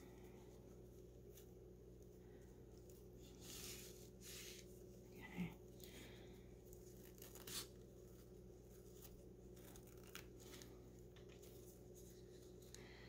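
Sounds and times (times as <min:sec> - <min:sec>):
low steady hum: 0:00.0 - 0:13.0
ribbon and fabric rustling: 0:00.0 - 0:13.0.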